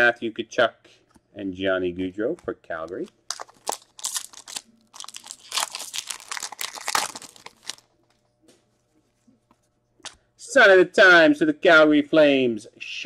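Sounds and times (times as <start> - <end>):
wrapper tearing and crinkling: 3.3 - 7.9.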